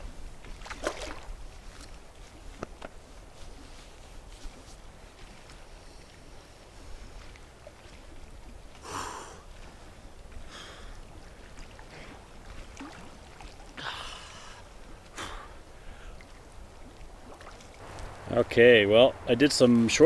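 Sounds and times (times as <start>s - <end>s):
water sloshing: 0.4s - 8.8s, 9.4s - 20.0s
wind rumble on microphone: 16.6s - 20.0s.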